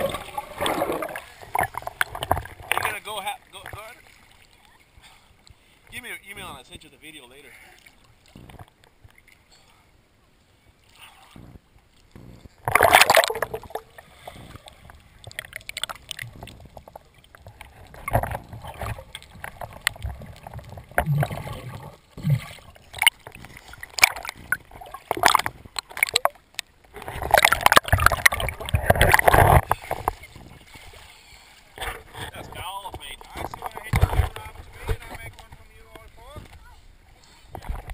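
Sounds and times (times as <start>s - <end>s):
dense splashing: 0.0s - 5.2s, 12.6s - 36.4s
water gurgling and sloshing: 0.0s - 37.9s
loud splash into water: 12.6s - 13.8s.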